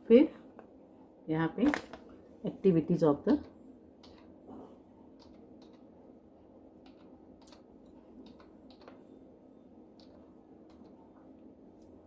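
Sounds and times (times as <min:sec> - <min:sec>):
faint keyboard typing: 0:03.3 - 0:04.4, 0:05.1 - 0:06.0, 0:06.8 - 0:09.3, 0:09.9 - 0:12.0.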